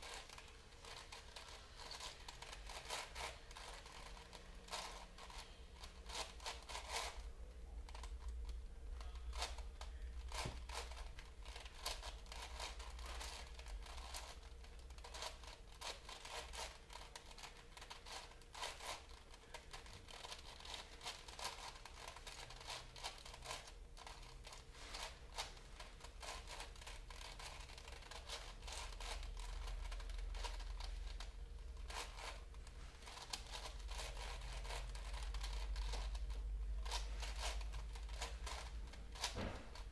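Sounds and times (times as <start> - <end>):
puzzle cube clicking: 0.0 - 7.2, 33.1 - 39.3
steady low hum: 0.0 - 39.9.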